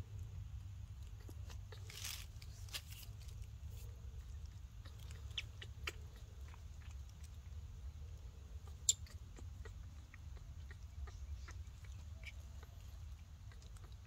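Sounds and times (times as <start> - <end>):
steady low hum: 0.0 - 14.0
baby monkey suckling bottle: 3.7 - 14.0.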